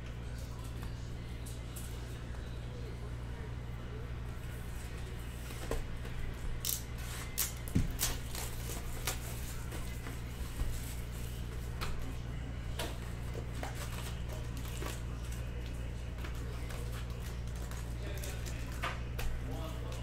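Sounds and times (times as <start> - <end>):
steady low hum: 0.0 - 20.0
cardboard and foil rustling: 7.0 - 11.8, 13.3 - 18.8.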